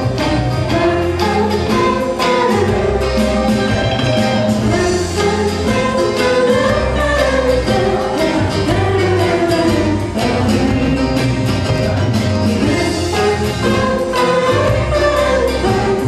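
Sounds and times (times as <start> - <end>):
keyboard accompaniment: 0.0 - 16.0
woman singing pop song: 4.6 - 11.4.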